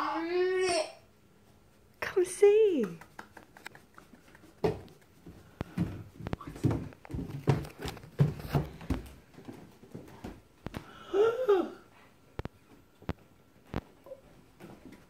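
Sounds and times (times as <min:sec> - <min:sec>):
toddler vocal sounds: 0:00.0 - 0:01.0
footsteps on wooden stairs: 0:04.6 - 0:10.5.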